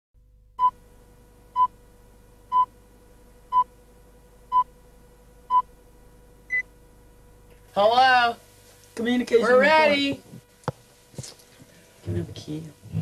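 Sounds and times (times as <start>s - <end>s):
faint steady hum: 0.2s - 13.0s.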